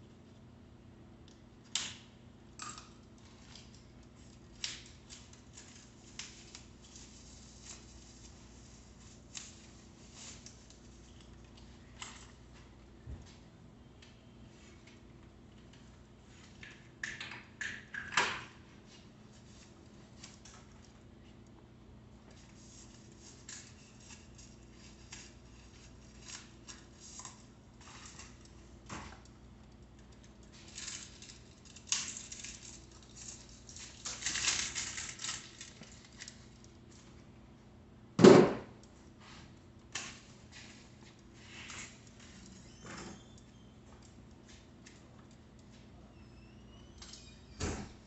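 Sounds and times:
loud sharp thump: 38.2s - 38.7s.

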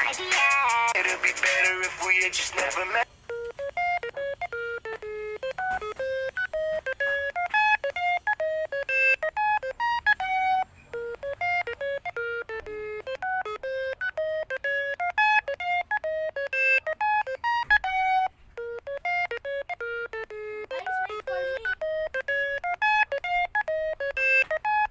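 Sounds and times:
song with singing: 0.0s - 3.0s
electronic beep melody: 0.0s - 24.9s.

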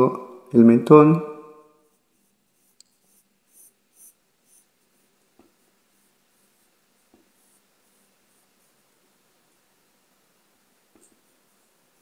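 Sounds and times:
pencil scratching on paper: 1.9s - 9.7s.

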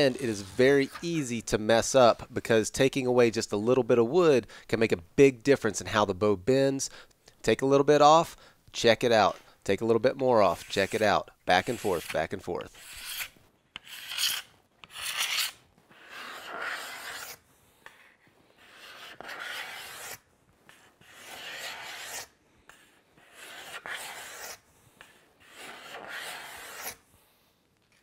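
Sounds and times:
hand rasp filing wood: 10.5s - 27.0s.

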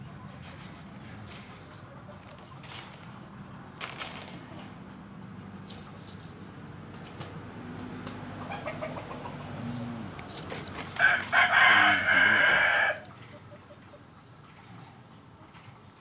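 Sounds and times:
rooster crowing: 10.9s - 13.2s.

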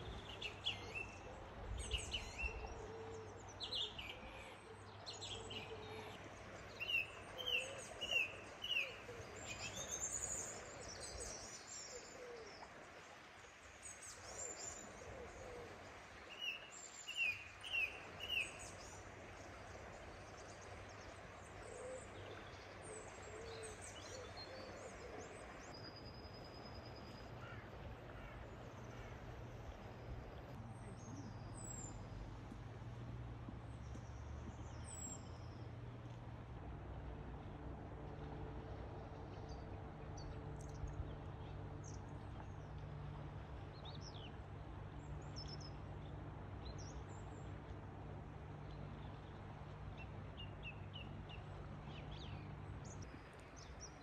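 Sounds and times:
birds calling: 26.8s - 30.6s.

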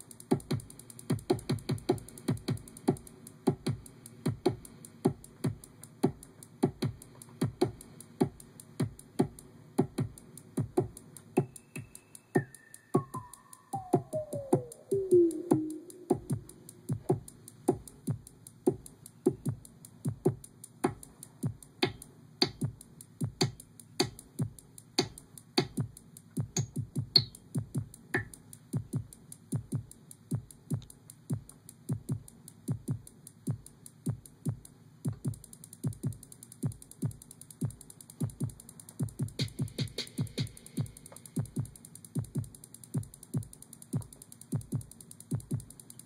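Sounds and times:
drum machine electronic beat: 0.0s - 46.0s.

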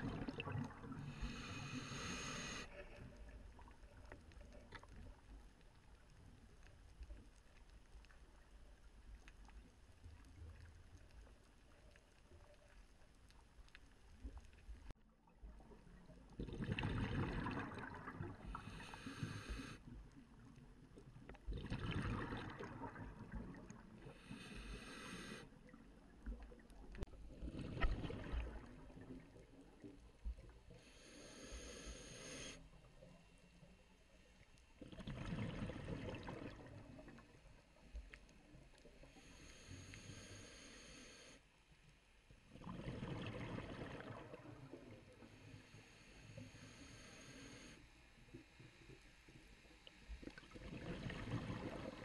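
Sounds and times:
exhaled bubbles rushing: 0.0s - 1.1s, 16.4s - 18.5s, 21.5s - 23.9s, 27.5s - 29.2s, 34.8s - 37.2s, 42.6s - 44.9s, 50.4s - 52.0s
faint underwater hiss: 0.0s - 52.0s
scuba regulator hissing: 1.2s - 2.6s.

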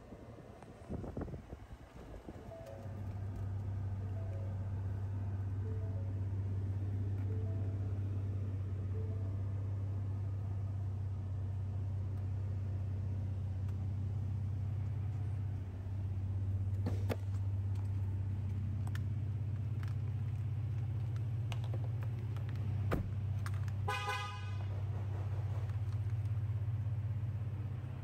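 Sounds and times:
car engine idling: 0.0s - 28.0s
car horn toot: 23.8s - 24.7s.

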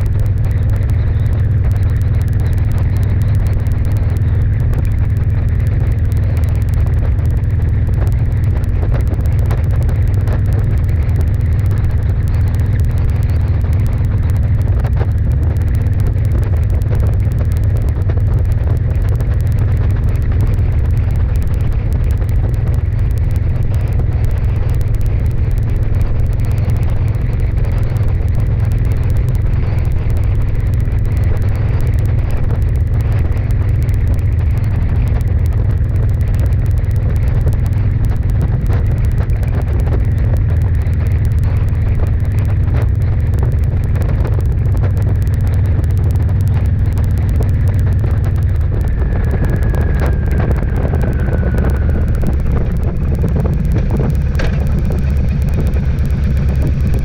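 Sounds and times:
faint steady hum: 0.0s - 57.0s
road noise: 0.0s - 57.0s
wind buffeting: 42.0s - 57.0s.

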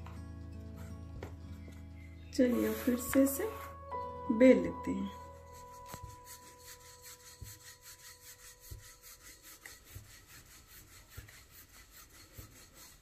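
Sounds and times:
rolling pin rubbing on dough: 2.4s - 3.8s, 5.2s - 13.0s.

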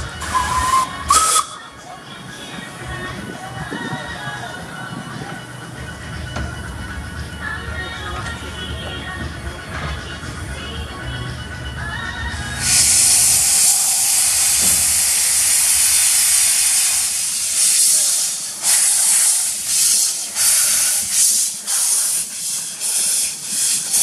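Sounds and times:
steam locomotive hissing and puffing: 0.0s - 1.7s, 12.5s - 24.0s.

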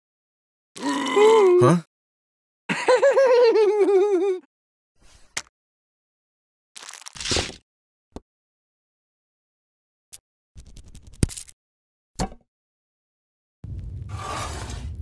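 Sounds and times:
plastic snack wrapper crinkling: 6.8s - 7.6s.

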